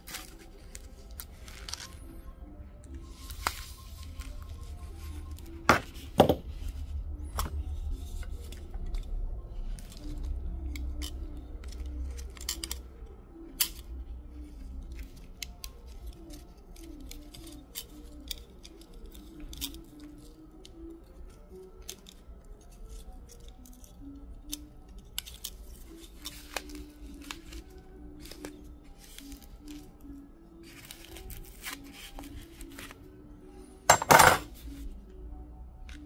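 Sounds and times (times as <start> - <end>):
soft background music: 0.0 - 36.0.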